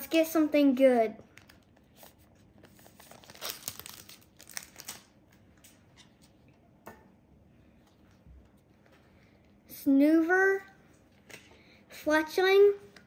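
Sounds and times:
foil wrapper crinkling and tearing: 1.4 - 5.2.

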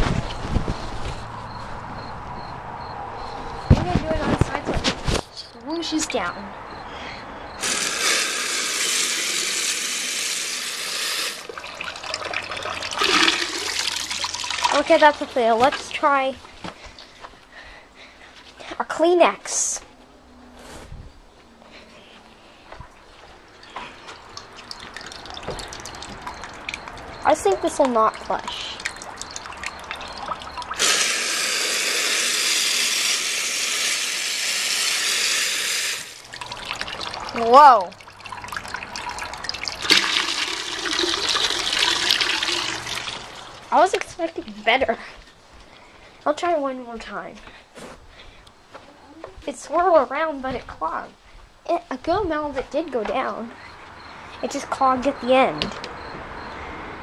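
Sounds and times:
toilet flushing water rush: 7.6 - 15.1, 28.8 - 43.6.

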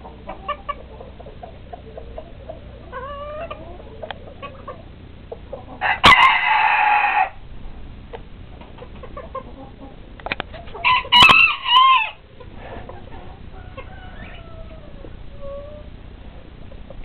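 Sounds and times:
chickens clucking softly: 0.0 - 7.3, 8.1 - 17.0
faint drawn-out falling calls: 0.3 - 7.4
rooster crowing: 5.8 - 7.4, 10.8 - 12.2, 13.3 - 15.9.

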